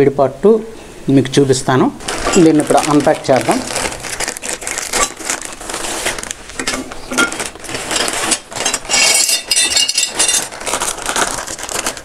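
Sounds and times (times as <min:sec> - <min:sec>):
packaging crinkling and tearing: 0:02.0 - 0:12.0
metal brackets clinking: 0:06.6 - 0:10.6.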